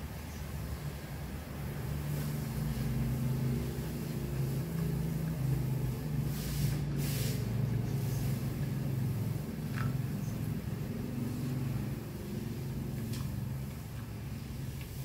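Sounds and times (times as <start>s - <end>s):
low mechanical drone: 0.0s - 15.0s
burst of hiss: 6.0s - 8.5s.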